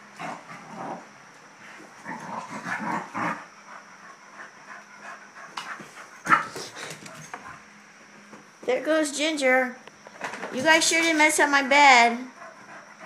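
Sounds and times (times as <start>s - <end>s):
dogs panting: 3.5s - 7.6s, 12.2s - 13.0s.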